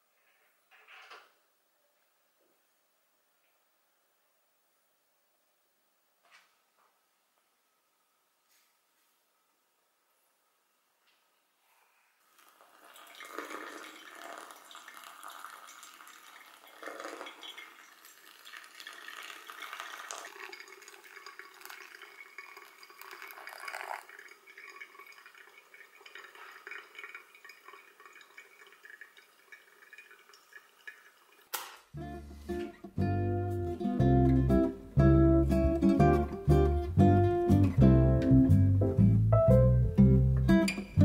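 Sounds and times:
hot water poured onto coffee grounds: 12.3 - 31.7
coffee dripping into glass: 12.4 - 31.5.

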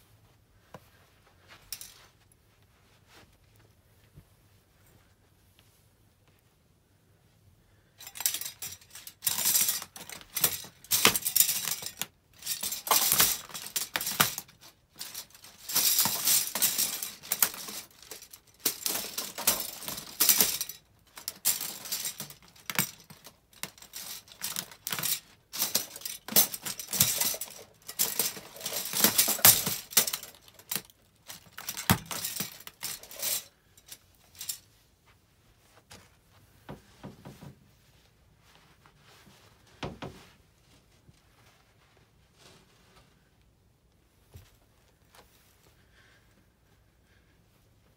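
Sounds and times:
plastic cutlery crushed underfoot: 8.0 - 34.6.

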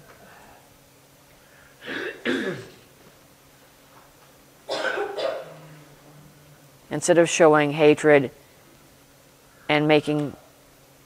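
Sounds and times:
person clearing throat: 1.8 - 2.8, 4.7 - 5.7.

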